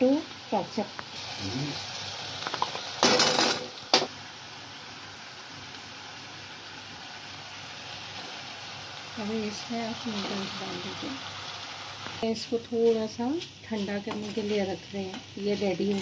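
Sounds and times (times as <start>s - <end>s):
vegetables sizzling in a pan: 0.0s - 16.0s.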